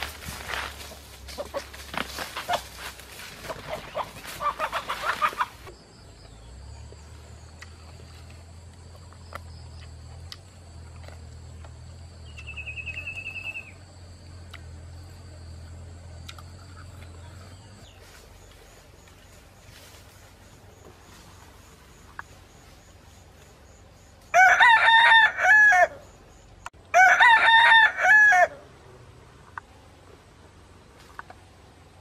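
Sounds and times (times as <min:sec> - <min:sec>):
chicken squawking and clucking: 0:03.4 - 0:05.7
low steady hum: 0:05.4 - 0:27.0, 0:28.5 - 0:32.0.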